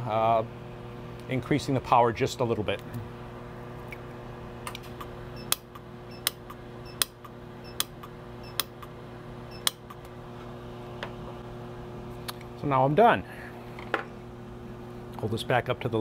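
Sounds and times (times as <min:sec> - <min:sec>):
pulse welder clicks: 0:04.6 - 0:08.9, 0:09.6 - 0:10.1.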